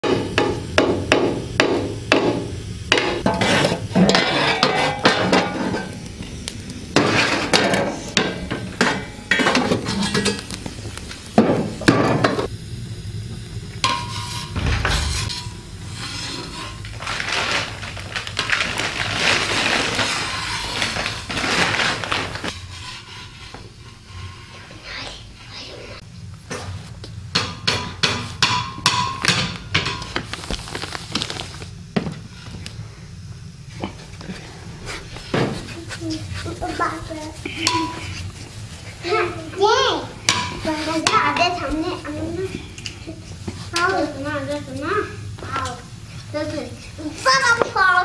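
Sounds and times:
metal clanks on iron stove: 0.0 - 10.6, 11.3 - 12.5, 13.8 - 17.0, 22.4 - 24.9, 27.3 - 30.3, 37.5 - 38.4, 39.2 - 43.1.

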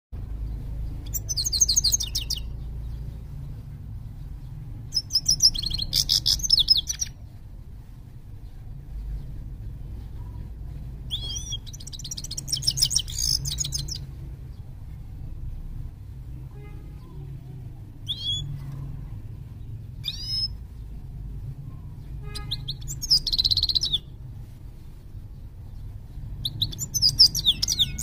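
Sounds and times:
finch twittering song: 0.2 - 7.5, 8.2 - 14.7, 18.0 - 24.2, 24.9 - 28.0.

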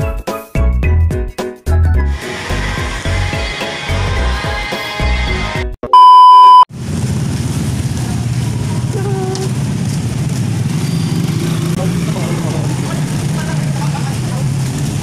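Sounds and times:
background music with a beat: 0.0 - 5.8
loud steady beep: 5.9 - 6.7
street traffic hum: 6.7 - 15.0.

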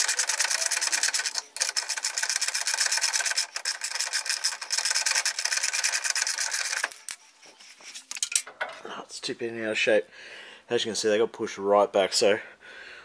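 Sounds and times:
ratchet spanner clicking: 0.0 - 7.2.

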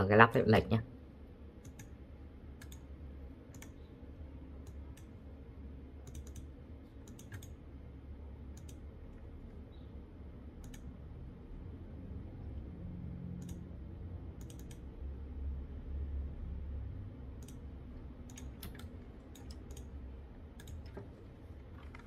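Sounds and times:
low steady hum: 0.0 - 22.0
computer mouse clicking: 1.6 - 2.0, 2.6 - 2.9, 3.5 - 3.8, 6.0 - 7.6, 8.5 - 8.9, 10.6 - 10.9, 13.4 - 13.6, 14.4 - 14.8, 17.4 - 20.0, 20.6 - 22.0.

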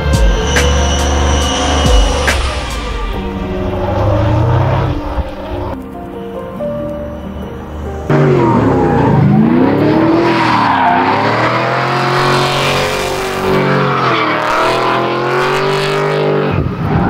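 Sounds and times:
car engine revving: 0.0 - 5.8, 7.7 - 17.0
tyres squealing and skidding: 0.0 - 5.8, 6.8 - 17.0.

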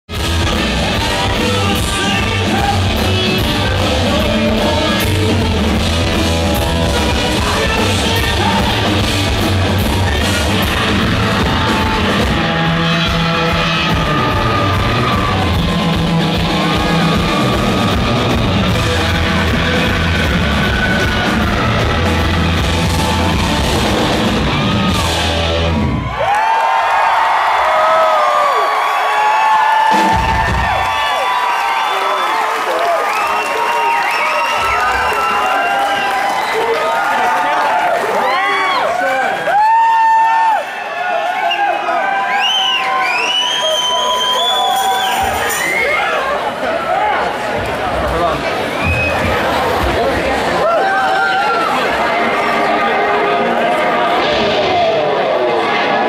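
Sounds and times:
hard rock band playing live: 0.1 - 26.2
man singing and yelling: 0.6 - 15.5.

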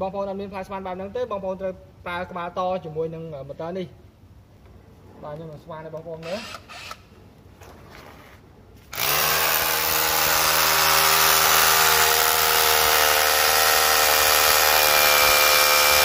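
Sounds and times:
rotary hammer drilling into concrete: 6.2 - 7.0, 8.9 - 16.0.

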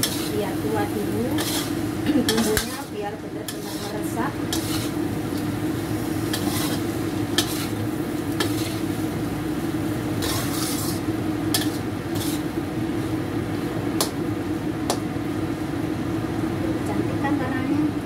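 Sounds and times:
spatula scraping wok: 0.0 - 13.1
light frying sizzle: 0.0 - 18.0
steady low hum: 0.0 - 18.0.

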